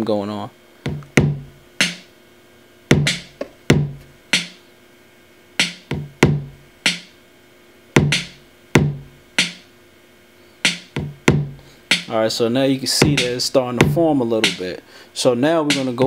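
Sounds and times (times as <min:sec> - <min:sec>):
hip-hop drum loop: 0:00.9 - 0:02.1, 0:02.9 - 0:04.6, 0:05.6 - 0:07.1, 0:08.0 - 0:09.7, 0:10.6 - 0:16.0.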